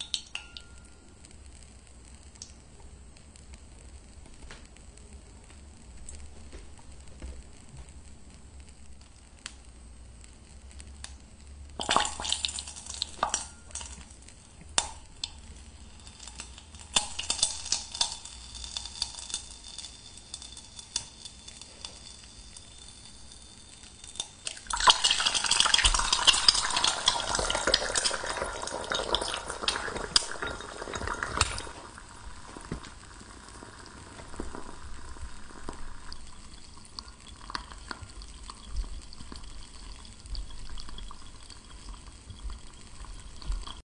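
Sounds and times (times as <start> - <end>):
egg sizzling in hot oil: 0.0 - 43.8
eggshell cracking: 11.8 - 43.8.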